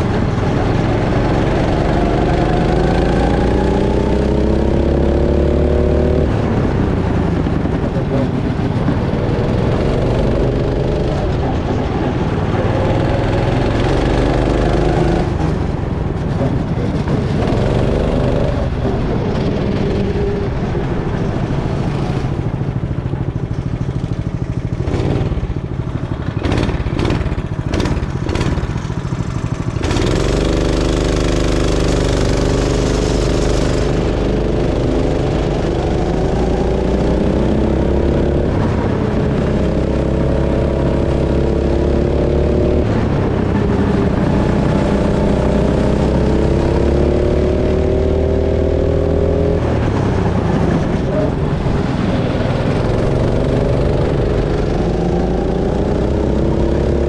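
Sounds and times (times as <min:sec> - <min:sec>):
go-kart engine revving: 0:00.0 - 0:57.0
sharp knocks and rattles: 0:22.3 - 0:34.0.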